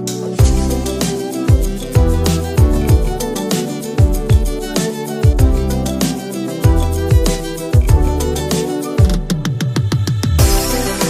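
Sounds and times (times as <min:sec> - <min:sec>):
melody: 0:00.2 - 0:09.1
deep thudding beat: 0:00.4 - 0:05.9, 0:06.7 - 0:08.4.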